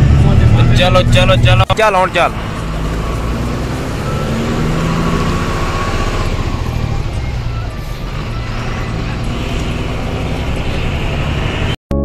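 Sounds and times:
truck engine running: 0:00.0 - 0:11.8.

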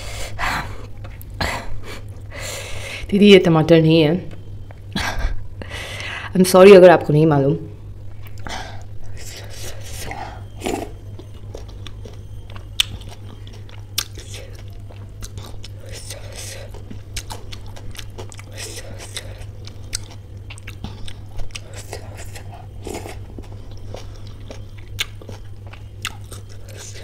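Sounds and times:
wet chewing mouth sounds: 0:08.1 - 0:27.0.

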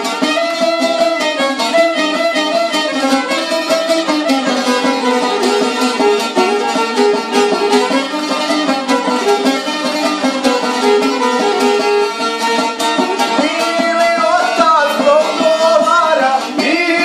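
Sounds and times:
plucked lute strummed: 0:00.0 - 0:17.0
violin melody: 0:00.0 - 0:17.0
man singing: 0:13.2 - 0:17.0.

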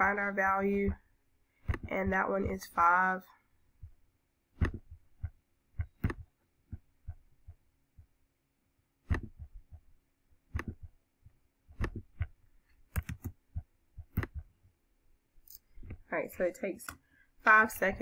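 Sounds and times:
computer mouse clicking: 0:01.6 - 0:02.6, 0:04.6 - 0:06.3, 0:09.0 - 0:09.5, 0:10.5 - 0:11.0, 0:11.7 - 0:14.5.

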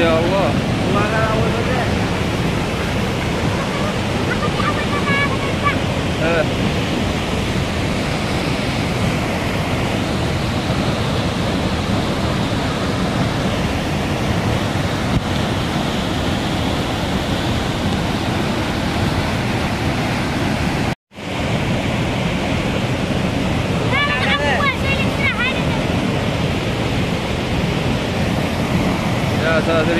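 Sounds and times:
water rushing over waterfall: 0:00.0 - 0:29.9.

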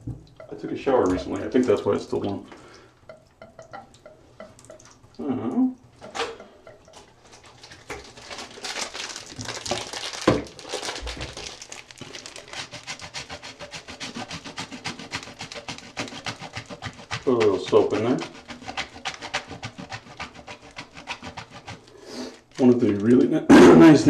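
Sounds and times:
soap grated on metal grater: 0:11.4 - 0:23.2.

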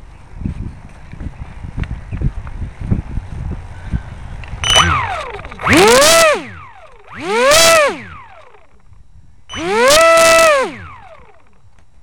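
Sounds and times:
electric motor whine revving: 0:04.6 - 0:08.8, 0:09.5 - 0:11.6.

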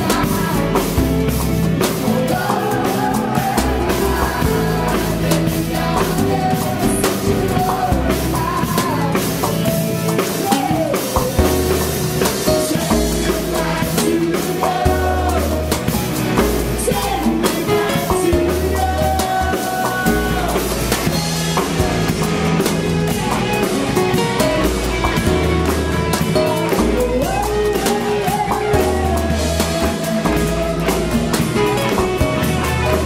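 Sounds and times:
woman singing: 0:00.0 - 0:01.0, 0:01.9 - 0:15.8, 0:16.8 - 0:21.0, 0:27.0 - 0:30.9
drum kit beat: 0:00.0 - 0:33.0
rock band playing: 0:00.0 - 0:33.0.

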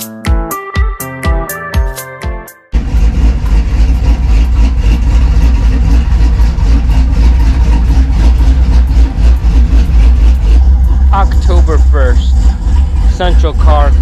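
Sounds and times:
truck engine rumbling: 0:02.7 - 0:14.0.

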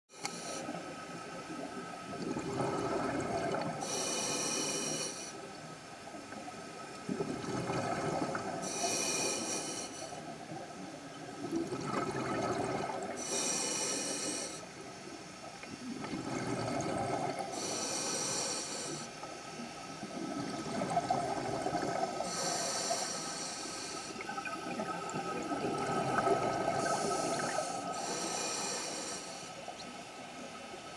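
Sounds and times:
regulator inhale hiss: 0:00.1 - 0:01.2, 0:03.8 - 0:05.6, 0:08.5 - 0:10.4, 0:13.1 - 0:15.2, 0:17.4 - 0:19.9, 0:22.1 - 0:24.3, 0:26.6 - 0:29.8
exhaled air bubbling: 0:01.5 - 0:04.4, 0:06.9 - 0:09.3, 0:10.1 - 0:14.3, 0:15.7 - 0:18.4, 0:20.0 - 0:28.6.

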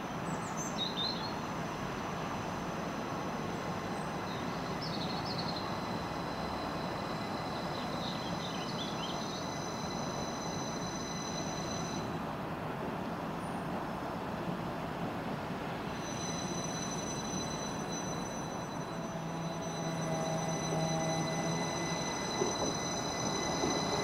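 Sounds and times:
train rumble: 0:01.2 - 0:24.0
high steady whine: 0:15.8 - 0:24.0.

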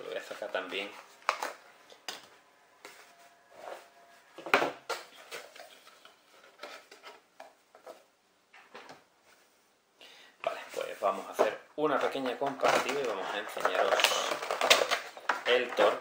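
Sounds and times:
packaging clicks and rustles: 0:11.9 - 0:16.0.

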